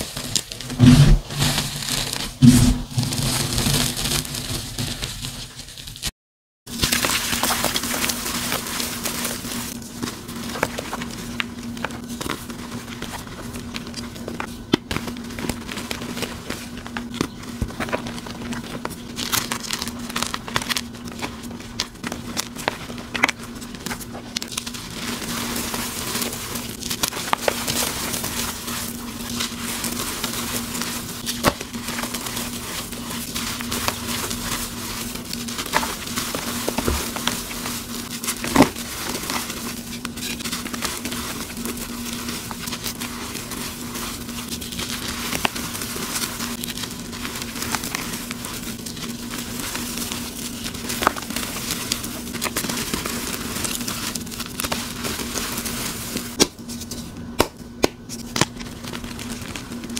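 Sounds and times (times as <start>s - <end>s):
chalk crunching and crumbling: 0.0s - 6.1s, 6.7s - 57.2s
steady low hum: 0.3s - 5.6s.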